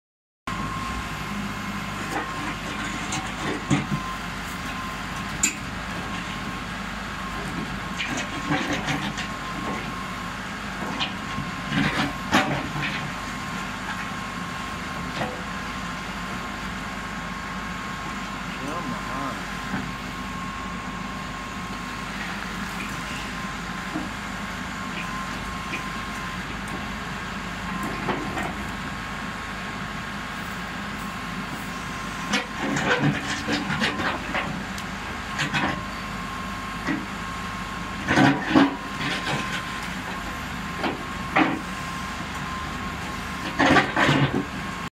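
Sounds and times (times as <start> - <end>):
diesel engine running: 0.5 - 44.9.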